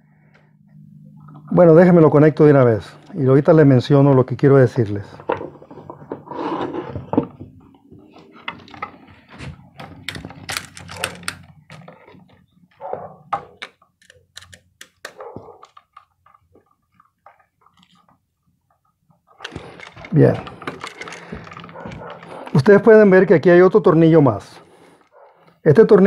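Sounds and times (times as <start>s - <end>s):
small clicks taps and scrapes: 9.8s - 22.6s.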